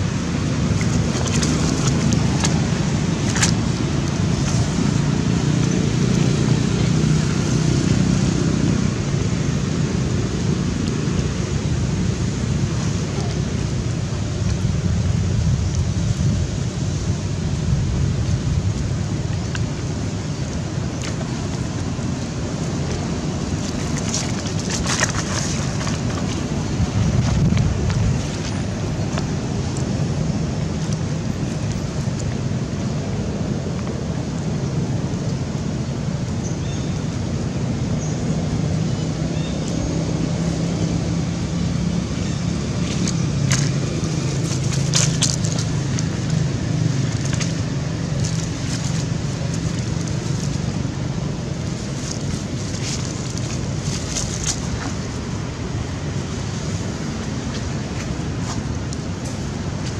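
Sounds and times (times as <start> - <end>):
wind buffeting microphone: 0.0 - 59.9
dry leaves crackling: 41.8 - 59.9.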